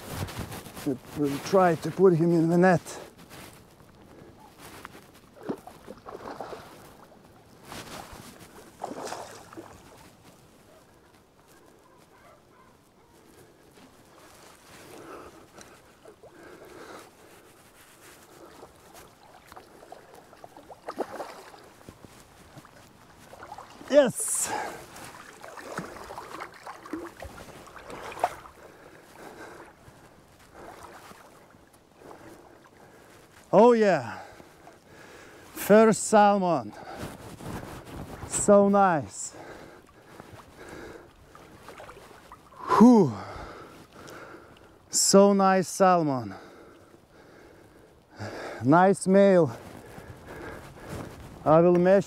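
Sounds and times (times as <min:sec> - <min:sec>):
water splashing: 0:04.5 - 0:10.6, 0:13.8 - 0:34.9, 0:38.2 - 0:45.1
sharp splash: 0:05.4 - 0:07.0, 0:08.7 - 0:10.1, 0:19.0 - 0:21.8, 0:22.6 - 0:28.5.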